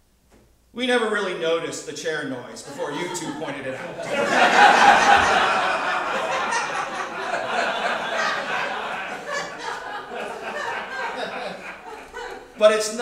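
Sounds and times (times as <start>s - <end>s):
audience laughing: 2.7s - 13.0s.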